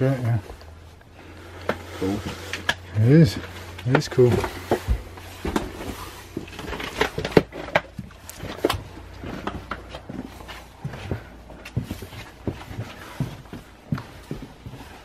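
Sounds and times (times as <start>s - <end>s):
footsteps on corridor floor: 8.4s - 15.0s.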